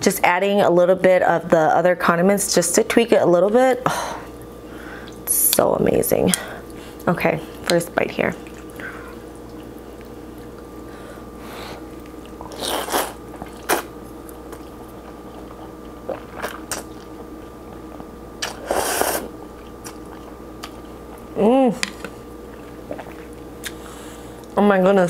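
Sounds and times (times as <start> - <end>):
person chewing: 8.4 - 10.9, 11.7 - 24.6
person slurping noodles: 12.4 - 13.9, 18.4 - 19.4.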